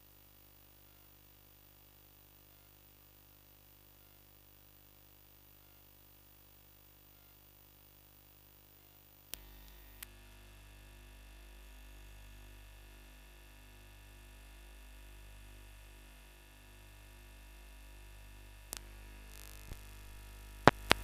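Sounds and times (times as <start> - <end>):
electrical mains hum: 8.8 - 21.0
sharp clicks: 20.6 - 21.0.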